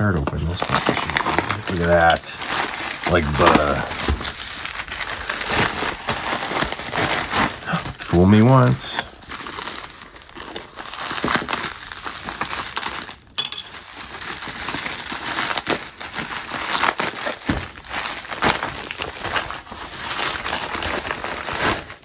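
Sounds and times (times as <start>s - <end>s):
plastic bag crinkling: 0.4s - 22.0s.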